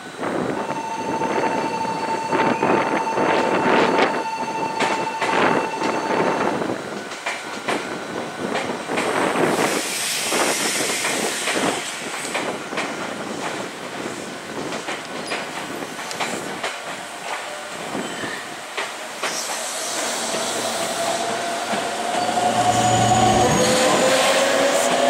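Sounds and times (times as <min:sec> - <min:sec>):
hiss: 0:09.0 - 0:22.0
train wheels clacking over rail joints: 0:14.6 - 0:22.5.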